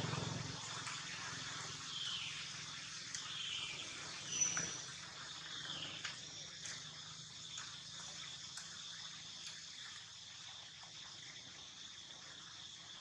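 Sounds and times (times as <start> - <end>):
outdoor background hiss: 0.0 - 13.0
high chirping calls: 1.8 - 4.9.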